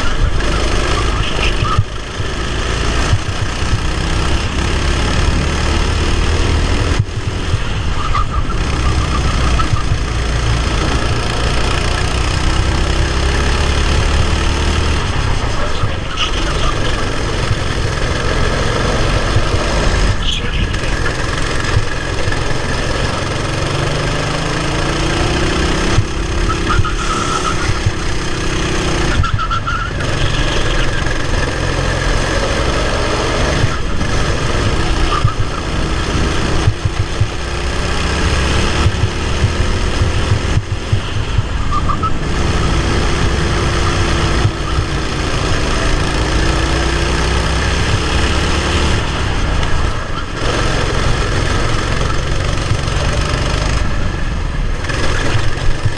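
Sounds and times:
kart engine revving: 0.0s - 55.9s.

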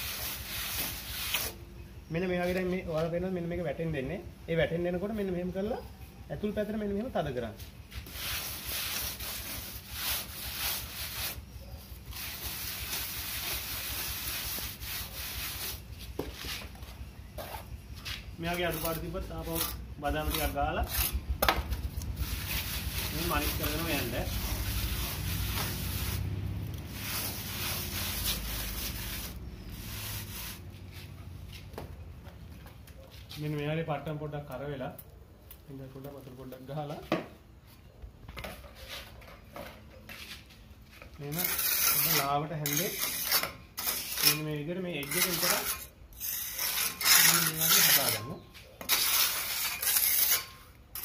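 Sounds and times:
float scraping plaster: 41.3s - 51.0s.

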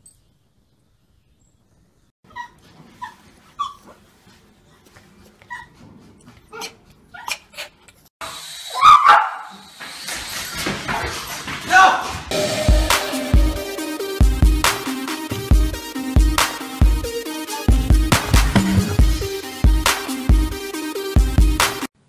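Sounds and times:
small dog yipping and whimpering: 2.3s - 4.0s, 5.4s - 5.8s, 6.4s - 7.8s.

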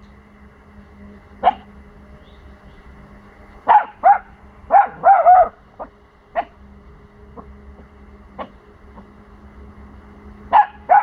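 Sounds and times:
puppy barking high-pitched: 1.4s - 1.6s, 3.7s - 6.6s, 8.4s - 8.6s, 10.5s - 11.0s.

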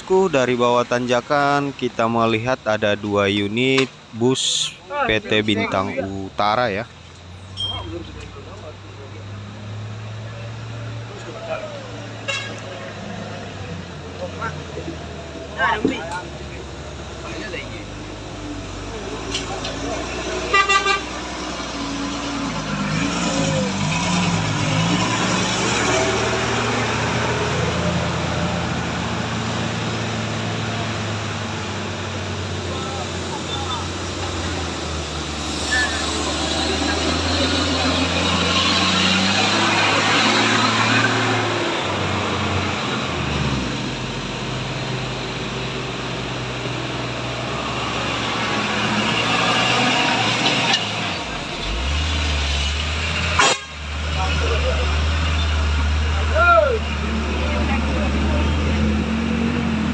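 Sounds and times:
bus diesel engines labouring: 0.0s - 59.9s.

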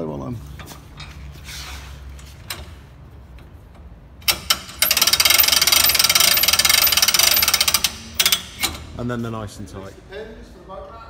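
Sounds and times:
winch ratchet clicking: 4.2s - 8.8s.

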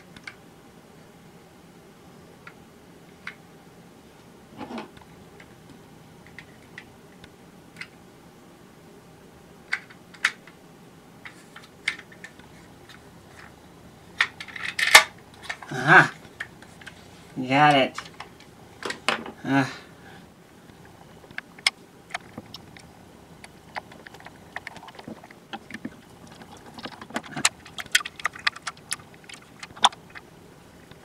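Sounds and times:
plastic parts clicking and tapping: 18.0s - 19.3s, 21.3s - 30.3s.

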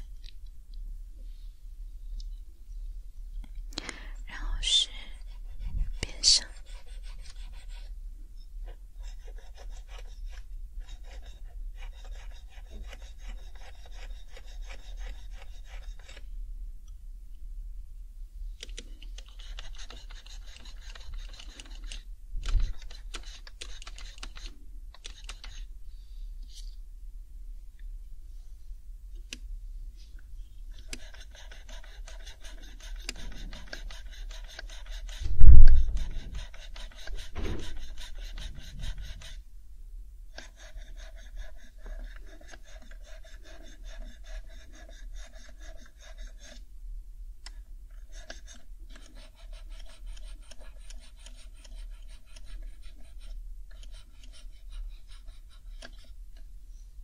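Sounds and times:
pad scrubbing keyboard keycaps: 18.6s - 25.7s, 30.8s - 39.4s, 48.0s - 56.2s
loud low thump: 35.3s - 36.2s, 37.4s - 37.6s.

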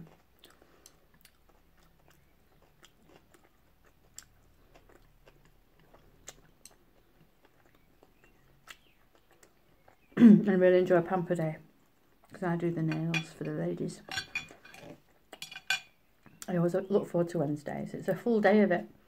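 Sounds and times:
faint chewing: 0.0s - 10.2s, 11.7s - 12.4s.

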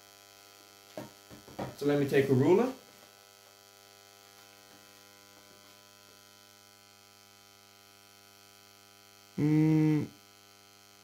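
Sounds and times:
faint mains hum: 0.0s - 11.0s
loud pitched hum: 9.4s - 10.1s.

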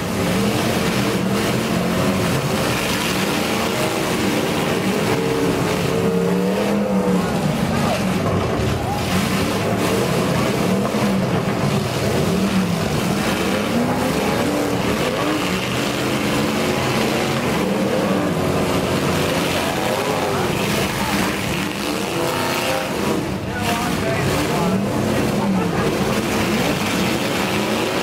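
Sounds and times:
car engines revving: 0.0s - 28.0s.

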